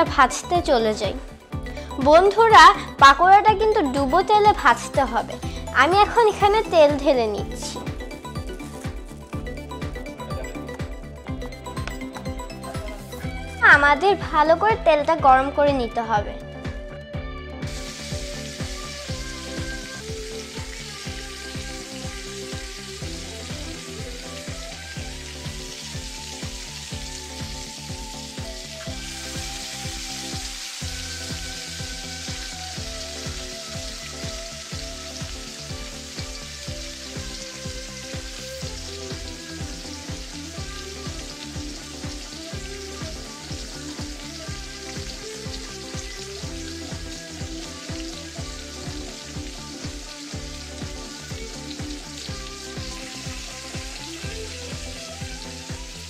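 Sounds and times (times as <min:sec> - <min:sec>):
background music with steady beat: 0:00.0 - 0:56.0
fritters sizzling in hot oil: 0:17.6 - 0:56.0.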